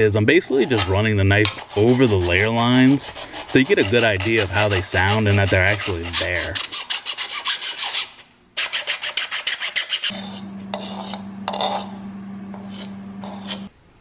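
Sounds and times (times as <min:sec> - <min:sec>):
sanding sponge rubbing plastic: 0:00.6 - 0:11.8
power tool scraping plastic: 0:10.0 - 0:13.7.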